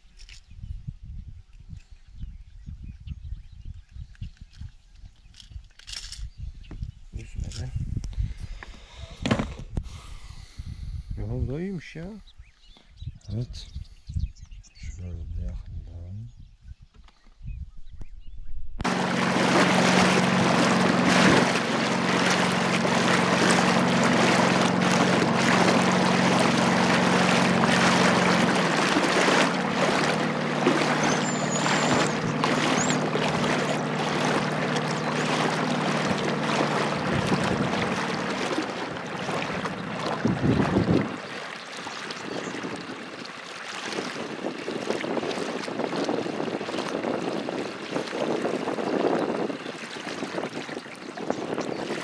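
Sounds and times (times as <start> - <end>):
wind on microphone: 0.0 - 11.7, 12.3 - 52.0
boat motor humming: 18.8 - 52.0.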